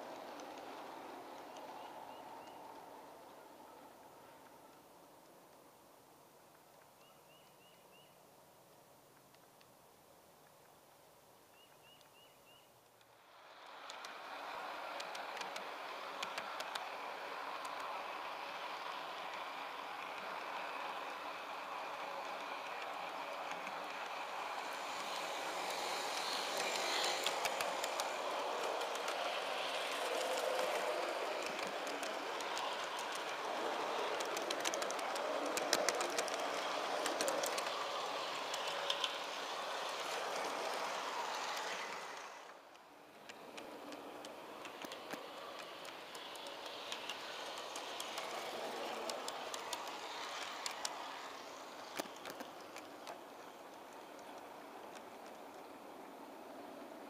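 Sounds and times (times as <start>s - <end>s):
model train wheels rolling: 0.0s - 5.6s, 11.6s - 57.0s
clicks over rail joints: 12.8s - 56.9s.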